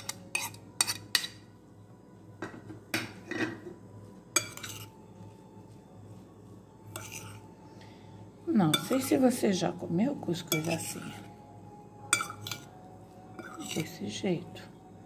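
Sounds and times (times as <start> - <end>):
metal spoon stirring in glass bowl: 0.0 - 1.5, 4.3 - 5.0, 6.8 - 7.6, 8.6 - 9.4, 10.3 - 11.3, 12.0 - 14.2.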